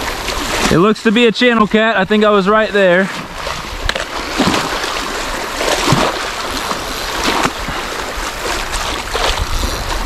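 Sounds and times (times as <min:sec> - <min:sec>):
water washing at shoreline: 0:00.0 - 0:10.0
fish splashing: 0:03.0 - 0:10.0.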